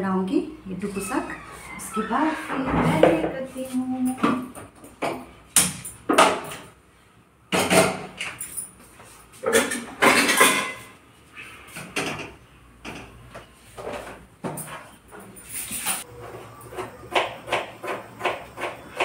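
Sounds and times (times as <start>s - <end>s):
metal cookware clattering: 9.4s - 10.9s.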